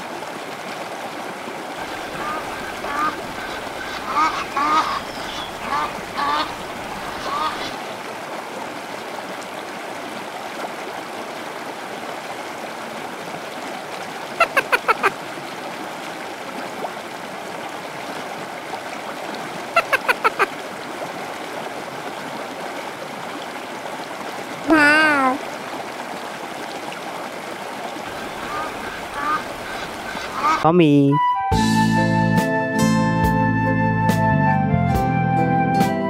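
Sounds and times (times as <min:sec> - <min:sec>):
water rushing: 0:00.0 - 0:30.7
bird calling: 0:01.8 - 0:07.8, 0:14.4 - 0:15.1, 0:19.8 - 0:20.5, 0:28.1 - 0:30.7.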